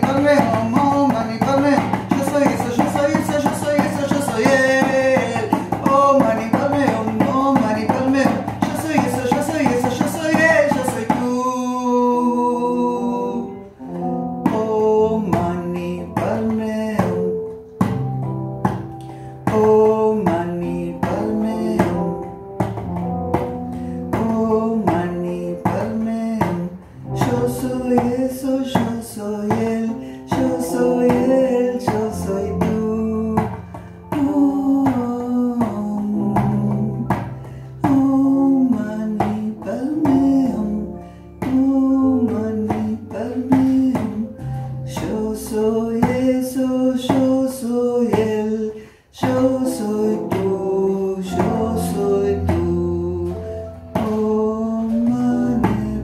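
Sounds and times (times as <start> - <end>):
hand drum beating: 0.0 - 11.5, 14.4 - 40.6.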